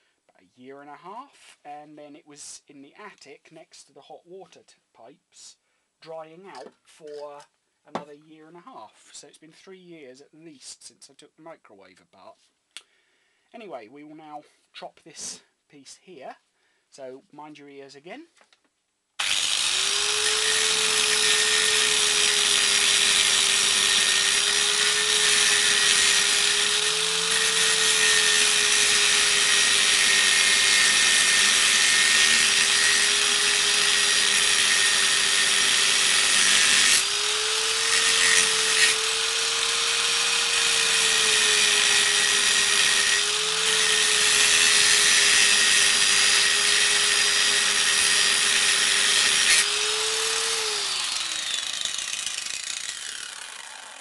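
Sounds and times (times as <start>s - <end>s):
angle grinder cutting steel: 19.2s - 54.0s.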